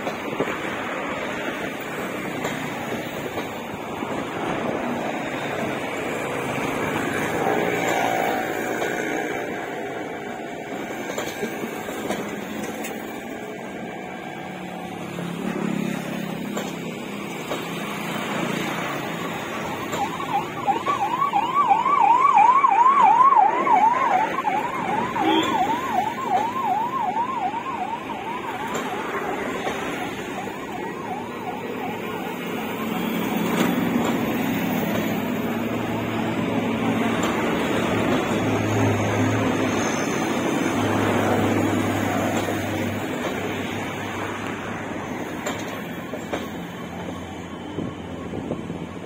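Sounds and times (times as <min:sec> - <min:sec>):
train rumbling past: 0:00.0 - 0:49.0
siren yelping: 0:19.2 - 0:33.5.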